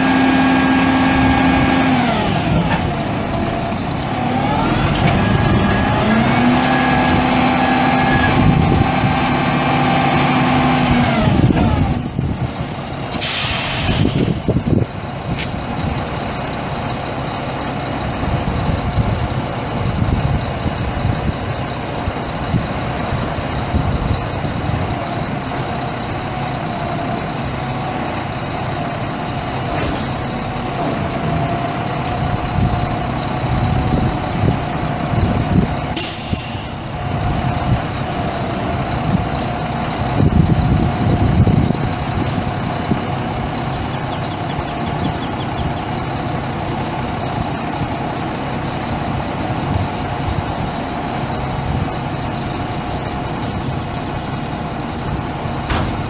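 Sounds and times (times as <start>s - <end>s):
diesel truck engine running: 0.0s - 56.0s
air hissing from brakes: 12.4s - 14.4s, 36.0s - 36.9s.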